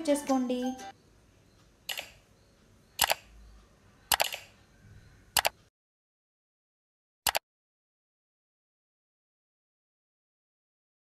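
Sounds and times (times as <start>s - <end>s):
mouse clicks: 1.9s - 2.2s, 3.0s - 3.3s, 4.1s - 4.5s, 5.3s - 5.6s.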